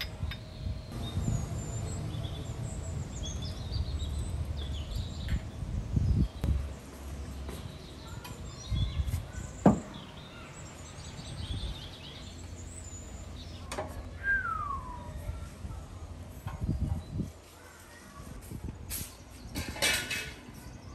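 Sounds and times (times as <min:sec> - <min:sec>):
birds chirping: 0:00.0 - 0:18.2
falling bird whistle: 0:14.2 - 0:15.1
metal lid clack: 0:19.6 - 0:20.4.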